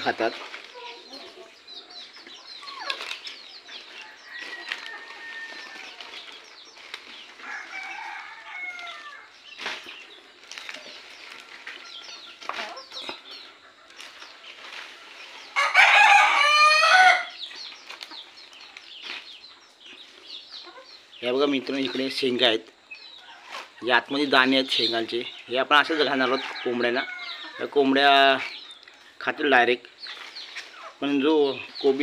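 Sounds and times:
chickens clucking: 0.0 - 32.0
rooster crowing: 4.0 - 6.0, 7.4 - 9.3, 15.6 - 17.4.

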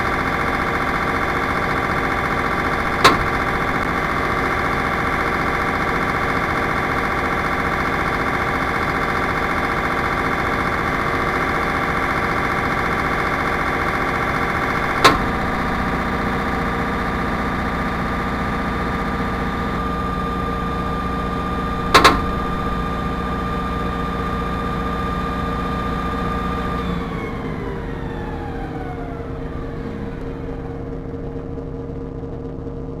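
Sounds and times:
circuit breakers clicking: 0.0 - 24.4
generator engines running: 0.0 - 33.0.

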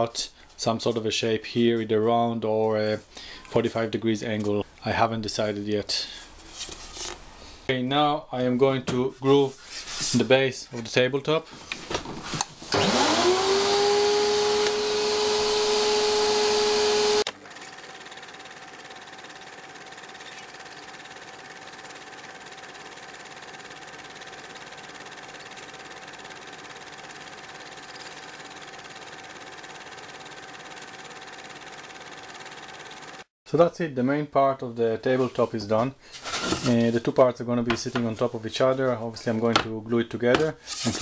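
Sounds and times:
electric router motor whine: 12.8 - 33.3.

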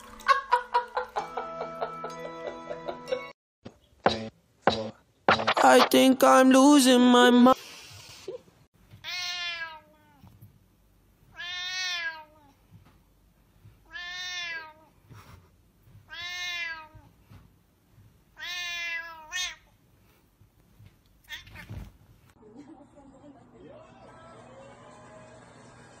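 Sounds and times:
cat meowing: 9.0 - 10.3, 11.3 - 12.6, 13.8 - 14.9, 16.1 - 17.1, 18.4 - 19.7, 21.2 - 21.8.

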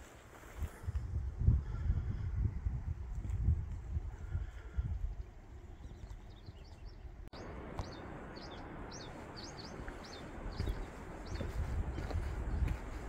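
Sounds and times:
steady outdoor hiss: 3.9 - 13.0
small bird chirping: 5.1 - 13.0.

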